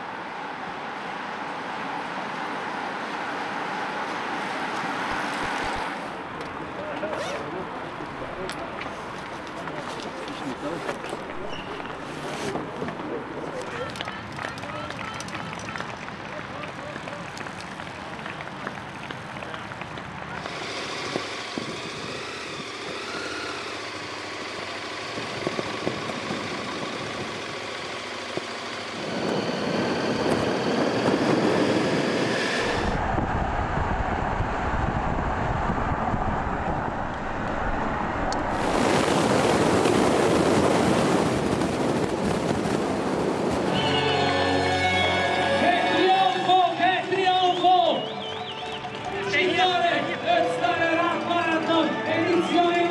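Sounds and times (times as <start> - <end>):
motorcycle engine: 16.6 - 33.6
wind rushing: 29.0 - 43.9.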